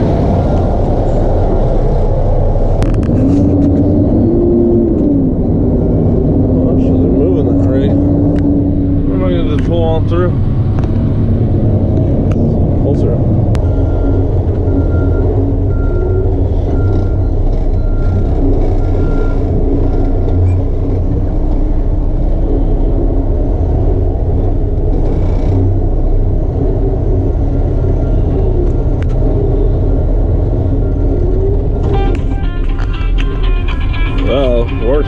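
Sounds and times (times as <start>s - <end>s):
truck engine rumbling: 0.0s - 35.0s
reversing alarm beeping: 13.6s - 20.6s.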